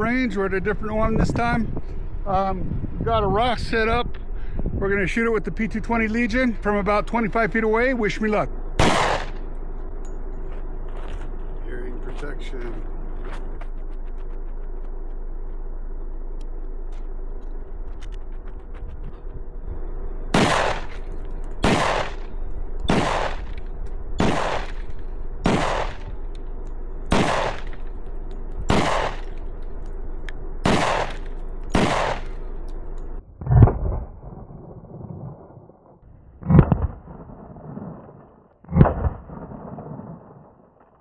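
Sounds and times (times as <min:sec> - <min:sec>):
pistol shots: 0:08.8 - 0:09.6, 0:20.3 - 0:26.3, 0:27.1 - 0:28.0, 0:28.7 - 0:29.4, 0:30.6 - 0:32.5.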